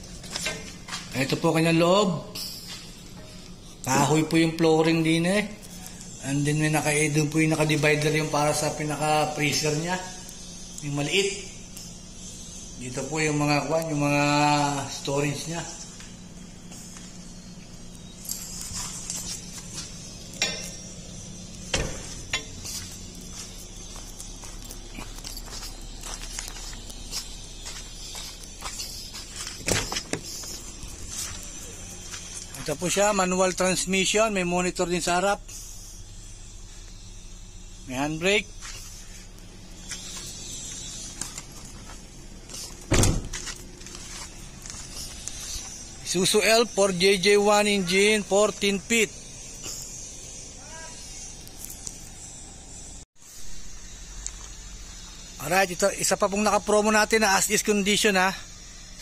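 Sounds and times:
steady low hum: 0.0s - 59.0s
loud thump: 42.9s - 43.4s.

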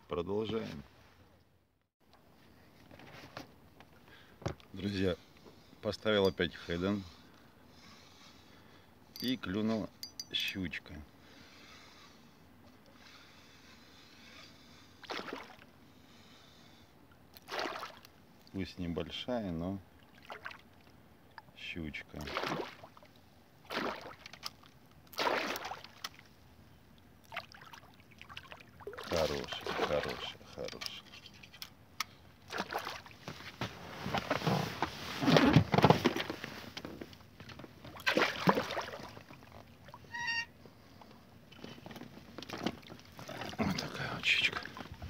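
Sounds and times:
fish splashing at water surface: 15.0s - 15.6s, 17.4s - 18.0s, 23.7s - 26.2s, 37.9s - 39.5s
water splashing against boat: 15.0s - 15.7s, 17.4s - 18.1s, 20.0s - 20.8s, 22.2s - 26.3s, 27.2s - 30.7s, 32.5s - 33.6s, 37.8s - 40.4s, 42.2s - 45.0s.

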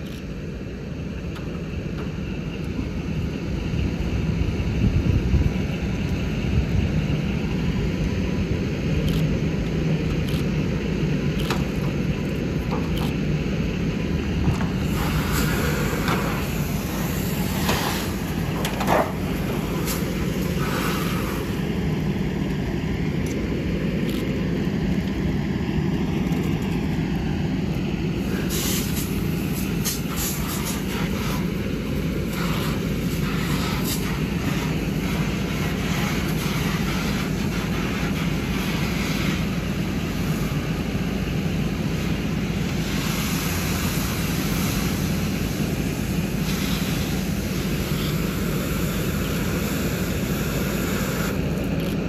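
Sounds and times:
fire engine pump running: 0.0s - 52.0s
hose stream hissing and spattering: 14.5s - 52.0s.

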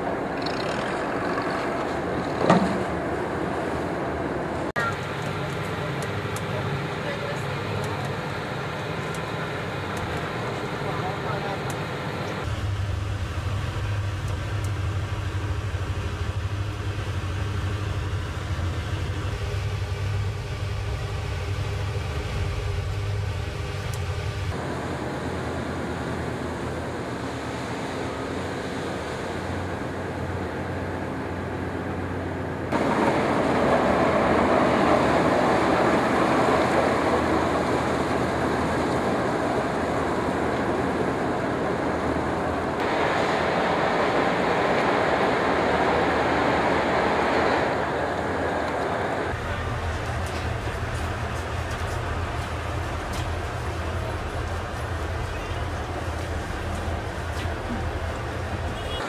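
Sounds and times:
ferry engines humming: 0.0s - 59.0s
even rushing noise: 32.6s - 58.8s.

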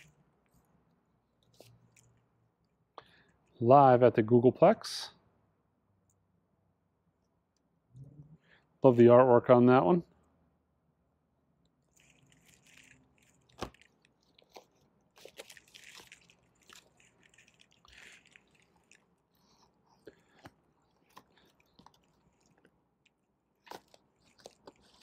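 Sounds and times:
plastic sleeves crinkling and rustling: 0.0s - 2.2s, 11.8s - 25.0s.

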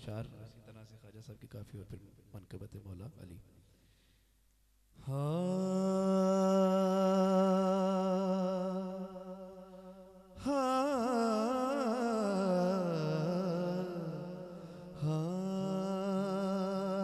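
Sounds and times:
man singing through pa system: 5.0s - 17.0s.

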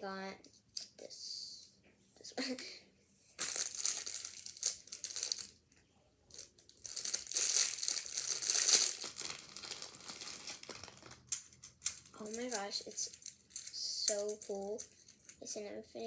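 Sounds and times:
plastic packaging crinkling: 3.4s - 5.5s, 6.3s - 15.4s.

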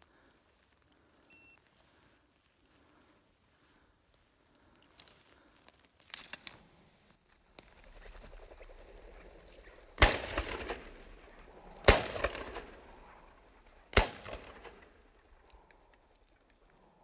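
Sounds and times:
shotgun shots echoing: 10.0s - 15.3s.

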